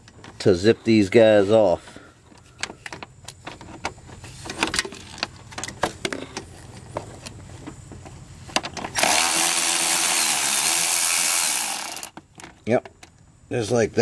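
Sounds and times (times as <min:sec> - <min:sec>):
cordless ratchet running: 0:09.0 - 0:12.2
ratchet clicking on a bolt: 0:09.0 - 0:12.2.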